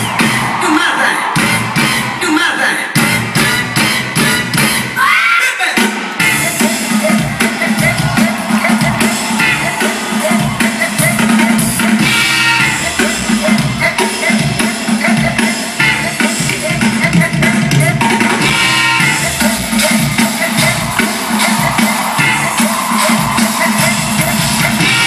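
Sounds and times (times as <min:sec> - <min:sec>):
live drum kit over pa: 0:05.8 - 0:25.0.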